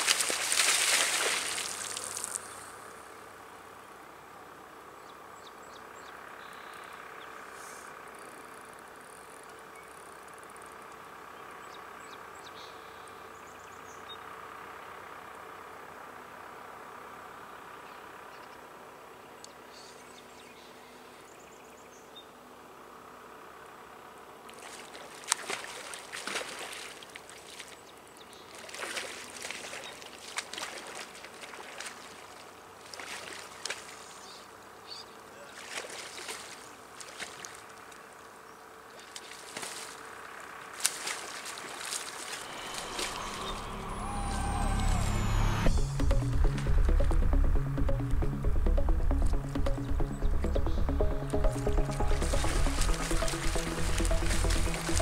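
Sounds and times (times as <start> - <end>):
fish thrashing and splashing: 0.0 - 2.5, 24.6 - 27.8, 28.5 - 34.1, 35.6 - 37.7, 39.0 - 40.0, 40.7 - 43.1
river water rushing: 0.0 - 2.9, 39.4 - 45.6, 50.9 - 55.0.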